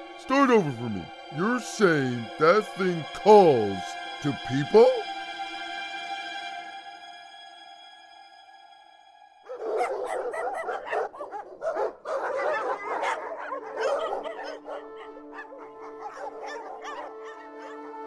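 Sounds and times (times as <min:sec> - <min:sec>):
background music: 0:00.0 - 0:18.0
dog yipping: 0:09.5 - 0:17.9
dog barking: 0:09.5 - 0:18.0.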